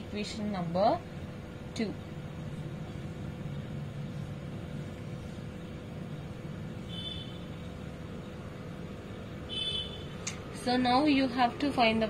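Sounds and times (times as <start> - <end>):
faint constant hum: 0.0 - 12.0.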